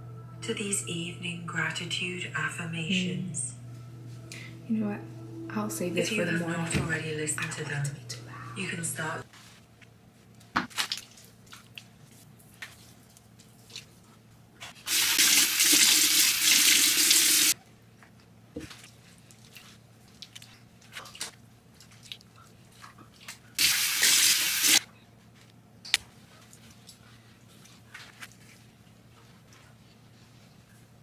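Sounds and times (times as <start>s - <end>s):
sink tap running: 14.9s - 17.6s, 23.6s - 24.8s.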